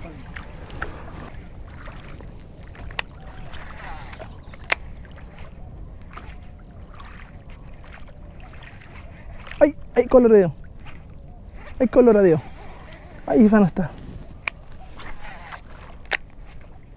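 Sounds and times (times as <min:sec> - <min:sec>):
wind on microphone: 0:00.0 - 0:09.6
water around boat: 0:00.0 - 0:16.9.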